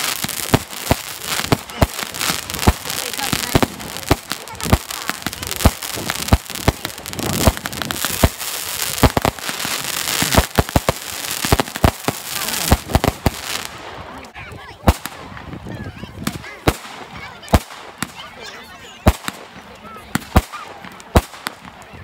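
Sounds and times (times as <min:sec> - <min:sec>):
firework bangs: 0:00.0 - 0:14.2, 0:14.8 - 0:18.2, 0:19.0 - 0:21.8
crackling hiss: 0:00.0 - 0:15.2.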